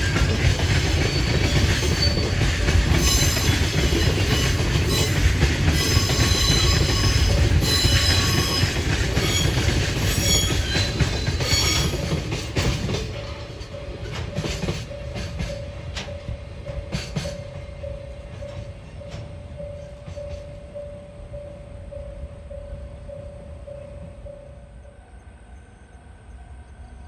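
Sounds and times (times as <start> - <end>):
freight train rumbling: 0.0 - 27.0
high-pitched wheel squeal: 0.9 - 5.2, 5.8 - 12.1.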